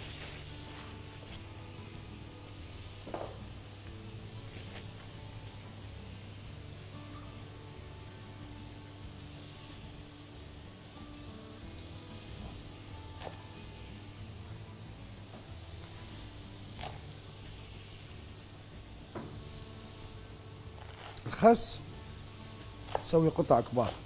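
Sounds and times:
food sizzling in a pan: 0.0 - 24.0
quiet background music: 0.0 - 24.0.

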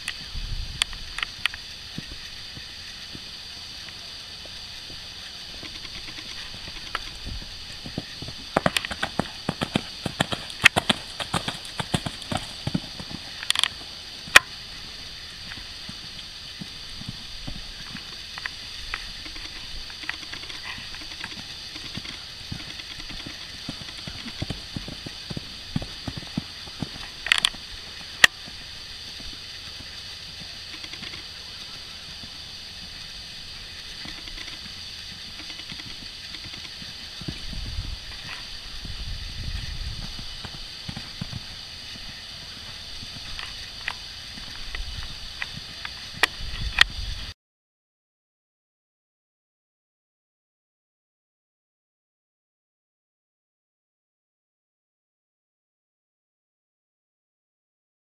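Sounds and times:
steady hiss: 0.0 - 47.4
horse hoofbeats on sand: 4.0 - 33.1, 33.8 - 46.4.

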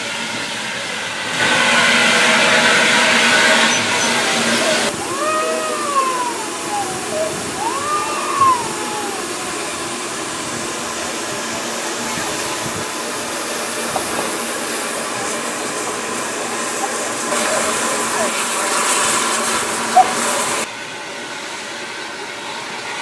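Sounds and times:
steam hissing from locomotive: 0.0 - 23.0.

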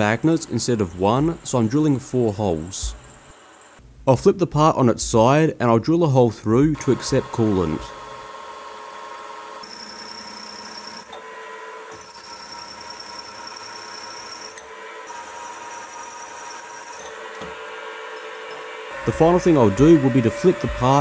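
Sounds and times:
milling machine drilling metal: 0.0 - 3.8, 6.7 - 21.0.

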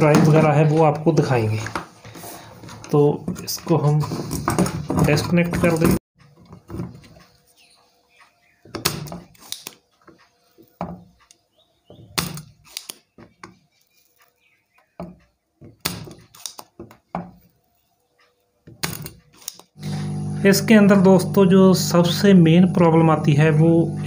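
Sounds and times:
desoldering pump snapping: 8.6 - 17.6, 18.7 - 20.3.

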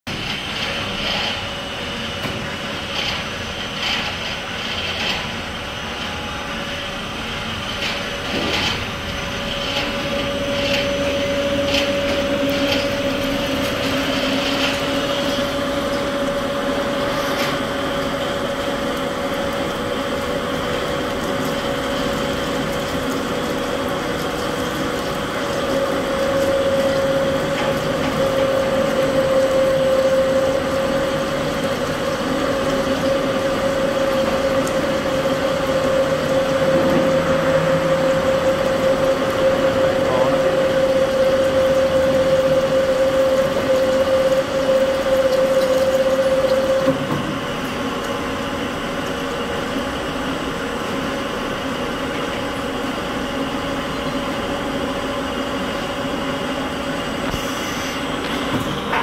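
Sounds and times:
drilling machine cutting metal: 7.0 - 47.9.

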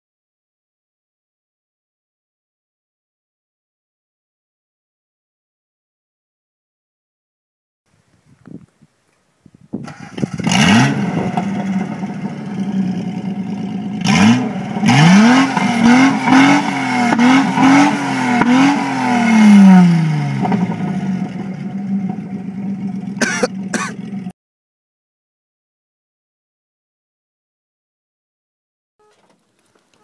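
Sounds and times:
car engine revving and idling: 9.9 - 24.3.

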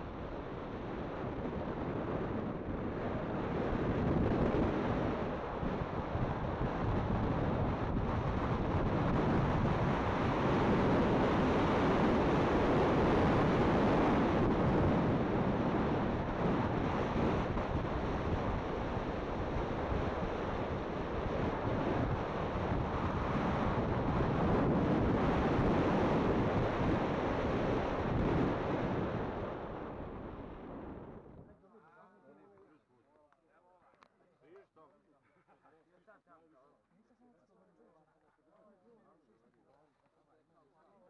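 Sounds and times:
wind buffeting microphone: 0.0 - 31.5.

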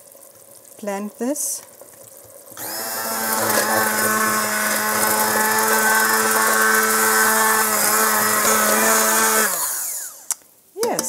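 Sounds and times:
immersion blender motor running: 2.6 - 10.3.

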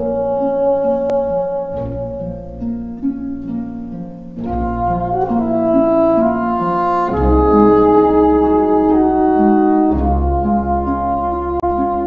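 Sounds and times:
slow instrumental music: 0.0 - 12.0.

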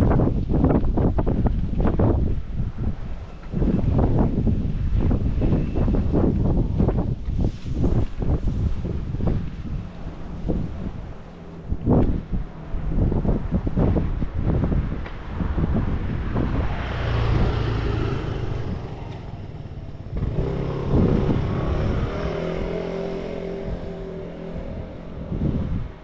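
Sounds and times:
wind buffeting microphone: 0.0 - 26.0
vehicle engine passing: 15.6 - 26.0.

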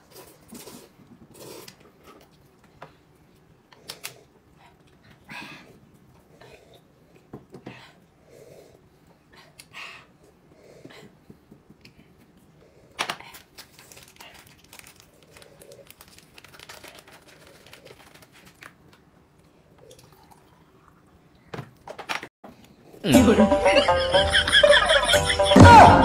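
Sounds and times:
crinkling and rustling: 13.0 - 19.1.

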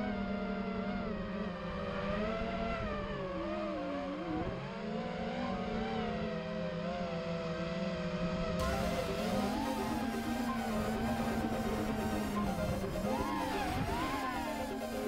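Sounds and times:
drone motors whining: 8.6 - 15.0.

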